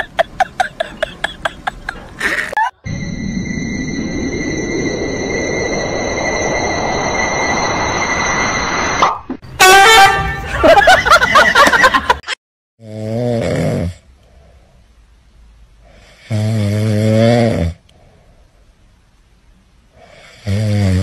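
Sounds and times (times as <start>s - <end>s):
loud pitched sound: 2.6s - 10.4s.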